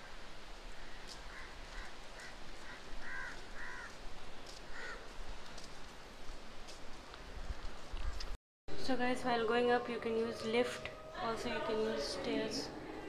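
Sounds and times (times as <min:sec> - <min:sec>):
steady background noise: 0:00.0 - 0:13.0
birds calling: 0:00.8 - 0:04.0, 0:04.7 - 0:05.1.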